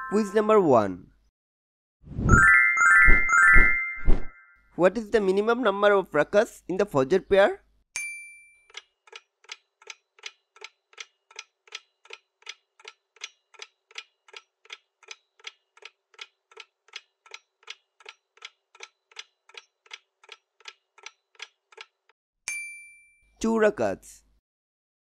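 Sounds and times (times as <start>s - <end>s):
clock ticking: 8.7s - 22.1s.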